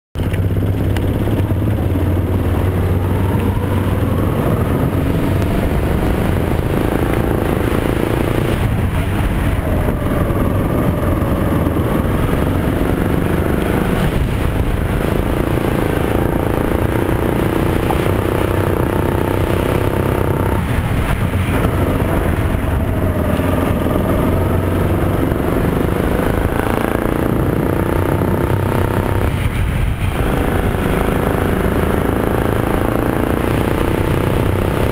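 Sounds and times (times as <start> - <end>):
kart engine revving: 0.2 - 34.9.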